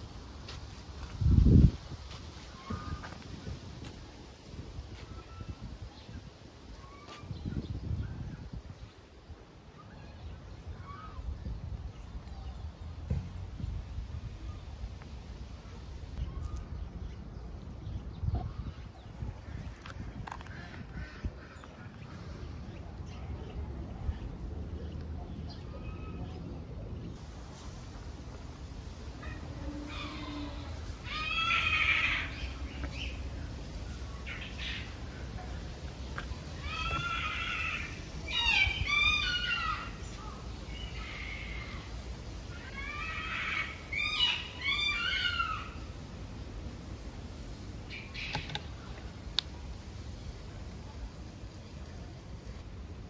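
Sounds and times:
birds calling: 0:29.2 - 0:46.0, 0:47.9 - 0:49.0.

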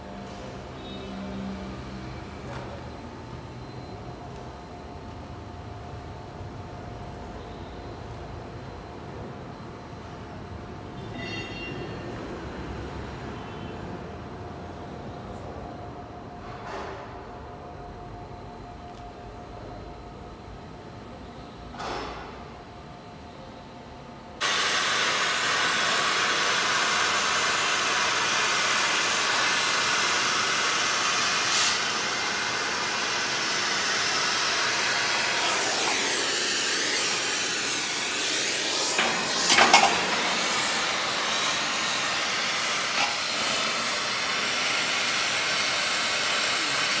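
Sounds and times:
loud steady hiss: 0:24.4 - 0:47.0.

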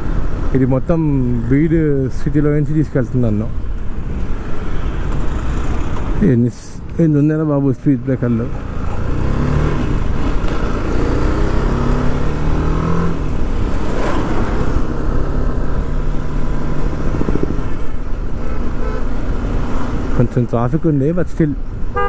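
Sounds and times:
motorcycle engine accelerating: 0:08.7 - 0:17.8.

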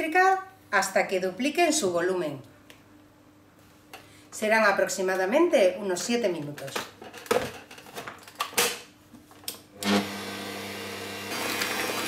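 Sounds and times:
electric stand mixer whisking: 0:09.8 - 0:12.0.

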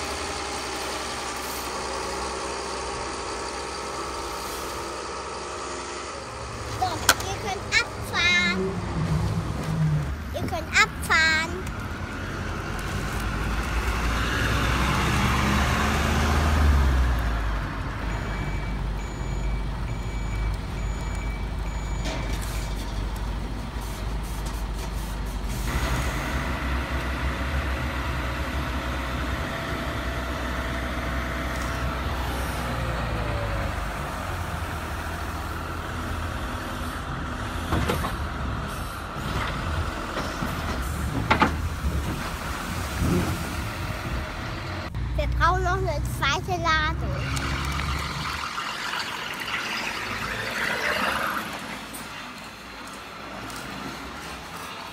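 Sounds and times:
truck engine rumbling: 0:00.0 - 0:54.9
high beeping: 0:47.2 - 0:51.5.

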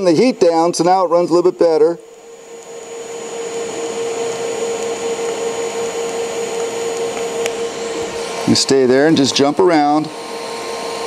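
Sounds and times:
welding arc hissing and humming: 0:00.0 - 0:11.0.

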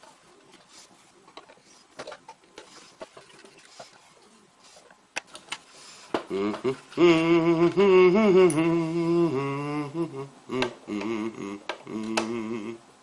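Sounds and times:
man humming: 0:06.2 - 0:13.0.

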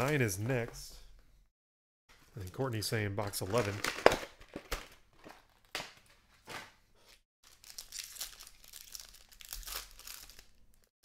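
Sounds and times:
foil pack crinkling and tearing: 0:07.4 - 0:10.9.

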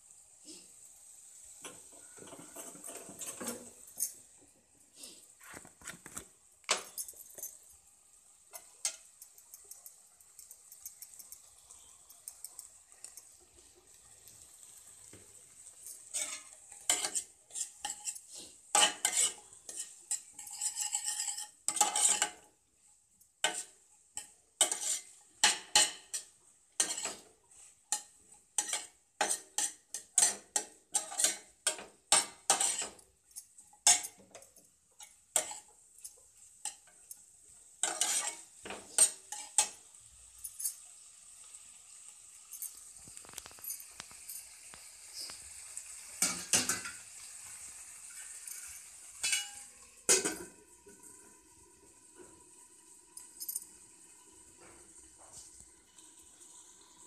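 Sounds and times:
faint sizzle: 0:00.0 - 0:57.0
spatula scraping a steel pan: 0:16.0 - 0:22.4, 0:23.4 - 0:33.0, 0:35.0 - 0:37.1, 0:37.8 - 0:39.8.

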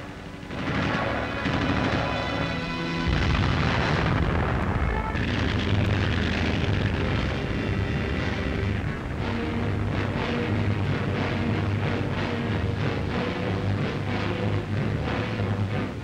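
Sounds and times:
explosions and artillery fire: 0:00.5 - 0:10.6
deep low rumble: 0:02.9 - 0:14.9.

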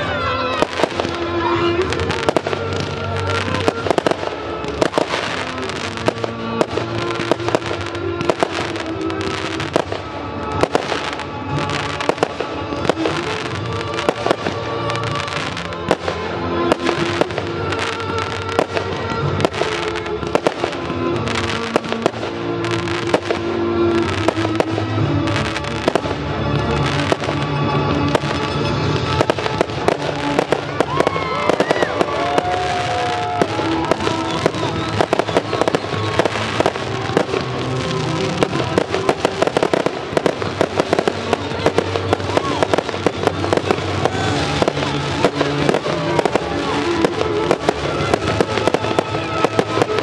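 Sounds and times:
music with sustained notes: 0:00.0 - 0:50.0.

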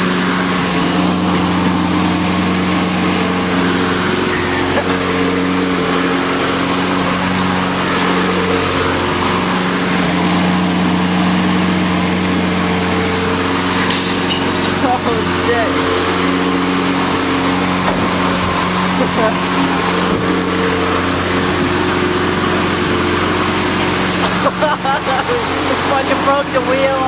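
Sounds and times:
lawn mower engine running: 0:00.0 - 0:27.0.

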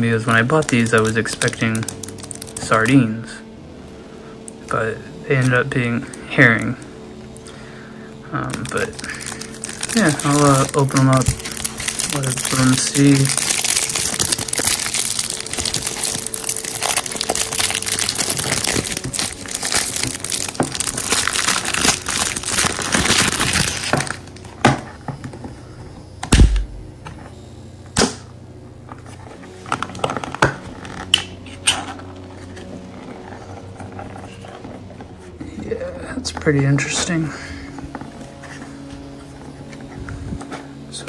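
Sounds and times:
cardboard crinkling and tearing: 0:00.2 - 0:02.9, 0:08.4 - 0:24.8.

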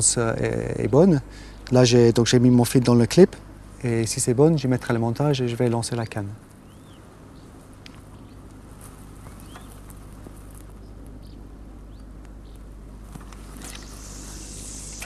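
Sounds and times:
low steady hum: 0:00.0 - 0:15.0
faint bird chirps: 0:06.6 - 0:07.5, 0:09.2 - 0:09.8, 0:13.5 - 0:15.0.

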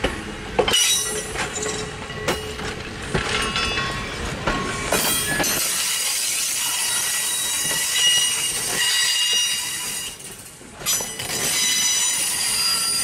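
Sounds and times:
train rolling rumble: 0:00.0 - 0:13.0
train wheels squealing: 0:04.6 - 0:13.0.

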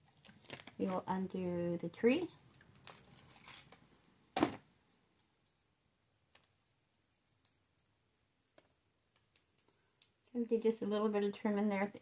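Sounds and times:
light clicks and taps of resin: 0:06.3 - 0:10.8.

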